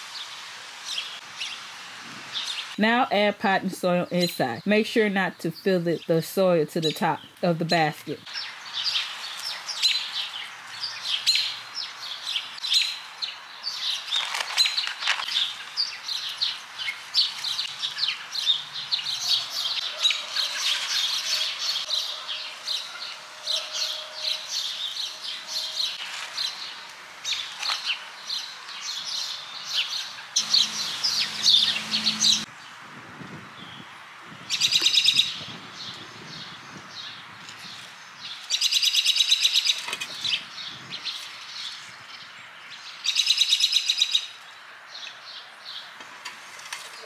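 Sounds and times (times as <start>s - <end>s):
songbirds chirping: 0.0s - 32.8s, 33.6s - 47.0s
low hum: 30.4s - 32.5s
rapid bird trill: 30.4s - 32.5s.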